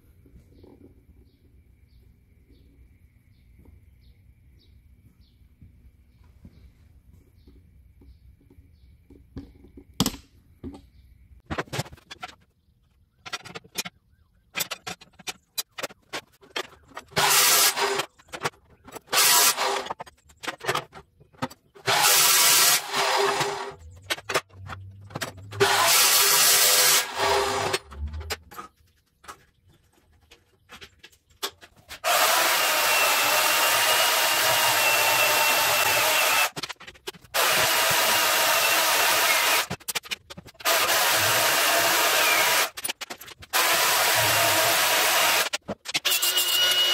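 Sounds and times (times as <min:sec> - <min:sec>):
band saw whining through steel: 0:16.6 - 0:18.1, 0:21.8 - 0:23.9, 0:25.4 - 0:28.1, 0:32.0 - 0:36.6, 0:40.6 - 0:42.8
chop saw cutting steel: 0:17.0 - 0:18.1, 0:19.0 - 0:20.0, 0:21.8 - 0:23.8, 0:25.6 - 0:27.9, 0:32.0 - 0:36.7, 0:37.3 - 0:39.8, 0:40.6 - 0:46.9.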